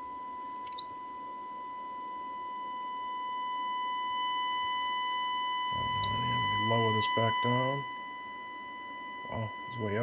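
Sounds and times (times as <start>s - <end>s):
steady test tone: 4.3s - 10.0s.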